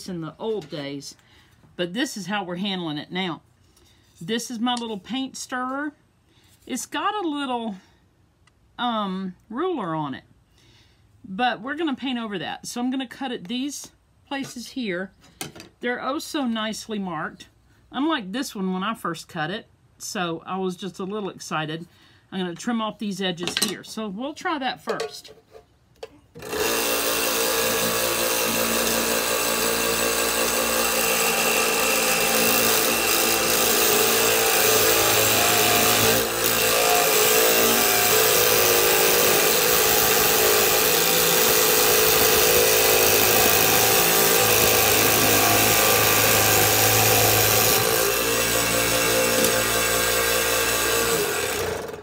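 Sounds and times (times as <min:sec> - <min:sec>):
toy scroll saw cutting wood: 0:26.4 - 0:52.0.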